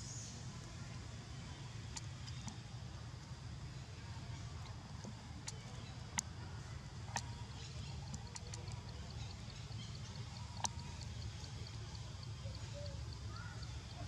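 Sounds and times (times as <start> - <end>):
low outdoor rumble: 0.0 - 14.0
sharp clicks and snaps: 1.9 - 2.6, 4.6 - 6.4, 7.1 - 14.0.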